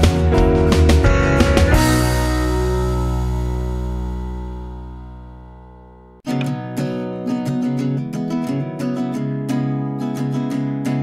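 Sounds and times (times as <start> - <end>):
acoustic guitar strumming: 0.0 - 11.0
steady low note: 0.3 - 6.2.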